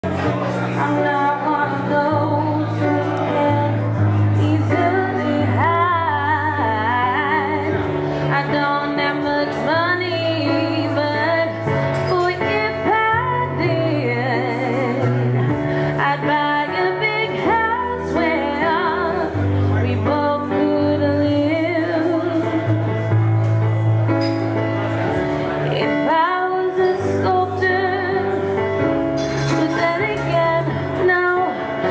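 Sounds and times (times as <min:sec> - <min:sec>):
woman singing with vibrato: 0:00.7 - 0:23.0, 0:29.4 - 0:31.9.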